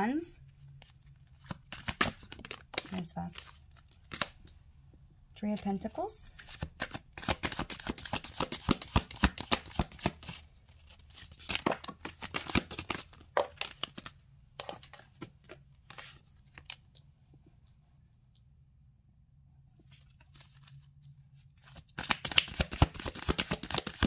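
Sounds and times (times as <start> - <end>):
cards being shuffled: 0.8 - 4.5, 6.4 - 17.1, 19.8 - 24.0
cards laid on a table: 19.8 - 24.0.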